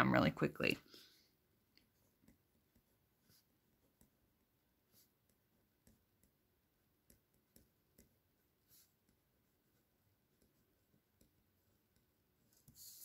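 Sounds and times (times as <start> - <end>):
pen writing on paper: 2.2 - 13.0.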